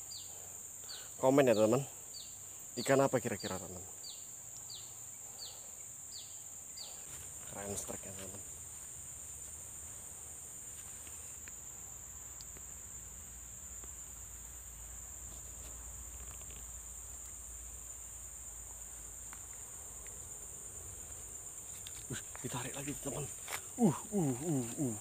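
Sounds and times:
insects chirring: 0.0 - 25.0
faint ticks: 4.5 - 4.8, 12.3 - 12.8, 13.7 - 14.0, 14.6 - 17.6, 18.6 - 20.4.

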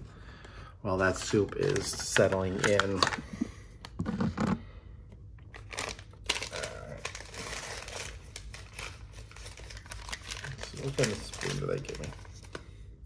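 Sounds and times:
paper sleeve crinkling and tearing: 5.6 - 12.6.

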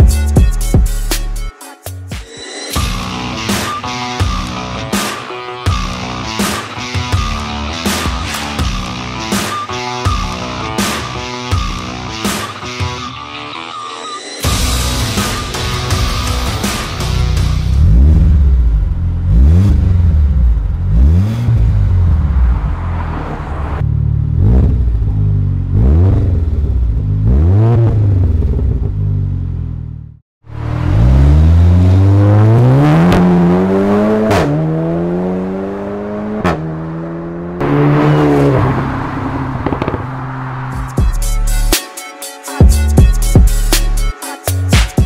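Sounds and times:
car engine revving: 14.8 - 41.7
exhaust cracks: 37.6 - 41.0.

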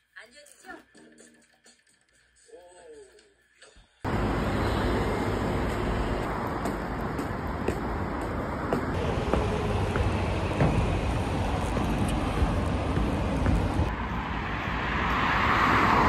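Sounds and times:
city road traffic: 3.7 - 16.0.

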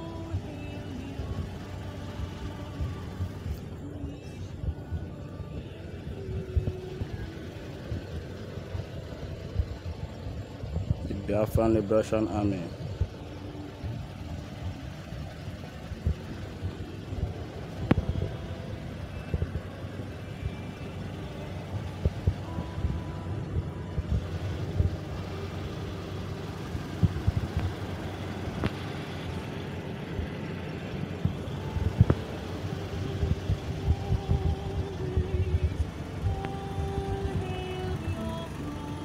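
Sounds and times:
truck engines rumbling: 0.0 - 39.0
wind and handling noise on microphone: 15.9 - 20.7, 31.2 - 38.1.

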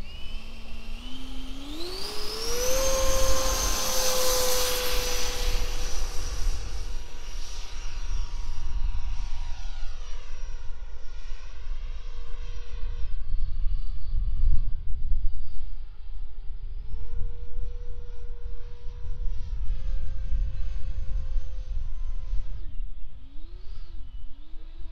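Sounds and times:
model jet fan whine: 0.0 - 24.9.

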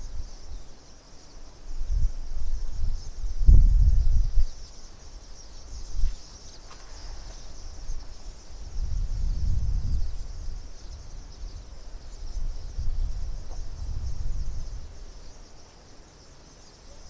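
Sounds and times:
wind buffeting microphone: 1.6 - 15.4.

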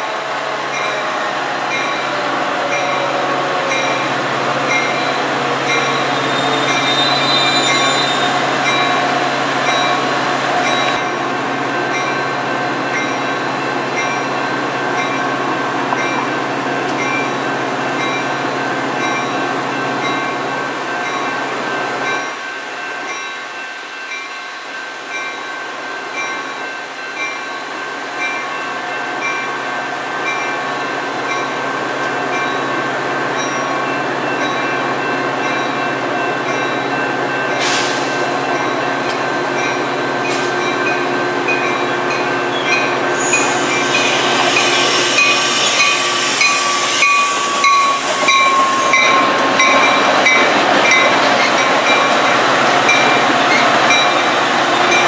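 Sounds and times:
train passing: 0.0 - 23.2, 23.8 - 55.0
crossing bell ringing: 0.0 - 55.0
train wheel squeal: 0.7 - 11.0, 42.1 - 55.0.

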